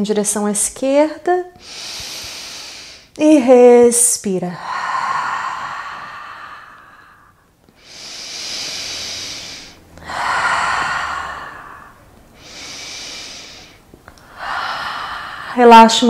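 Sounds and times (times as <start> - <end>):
woman breathing deeply: 1.6 - 3.2, 4.6 - 15.6.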